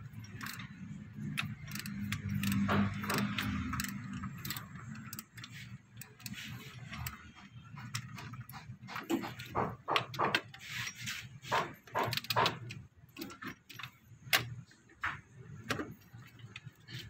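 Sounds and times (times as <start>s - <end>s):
metallic clicks of hand tools: 0.1s - 7.2s.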